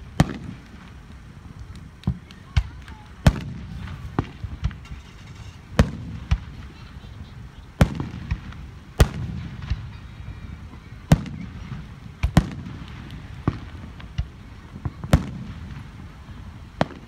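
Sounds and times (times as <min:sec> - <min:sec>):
firework shells bursting: 0:00.0 - 0:17.0.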